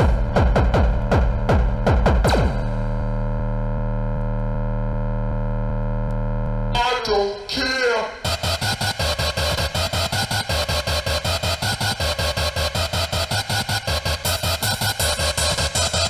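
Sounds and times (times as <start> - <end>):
booming kick drums: 0.0 - 3.3.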